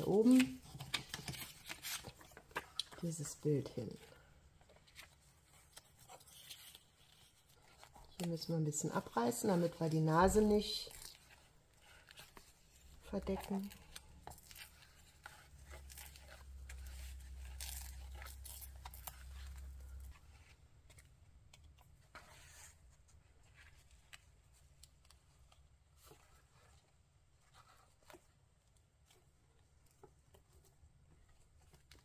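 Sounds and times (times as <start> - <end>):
paper tearing and rustling: 0.0 - 3.0, 4.9 - 8.1, 10.3 - 20.1.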